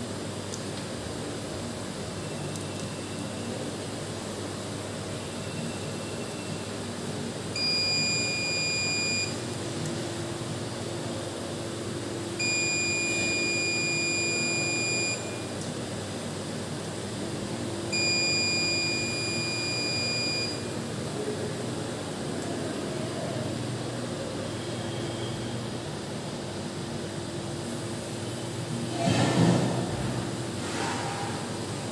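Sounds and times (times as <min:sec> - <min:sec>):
multimeter continuity beeps: 0:07.6 - 0:09.4, 0:12.4 - 0:15.5, 0:17.9 - 0:20.8.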